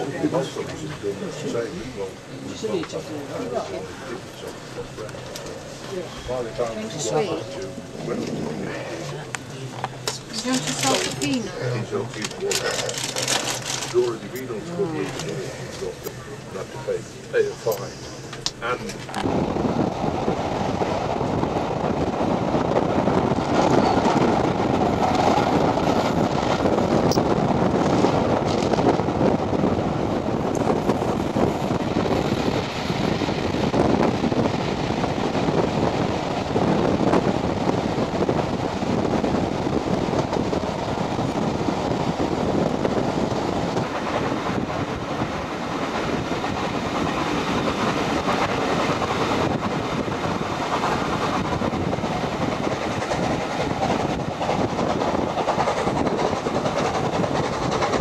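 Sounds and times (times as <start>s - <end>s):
train wheels rumbling on rails: 0.0s - 58.0s
rushing air: 15.1s - 58.0s.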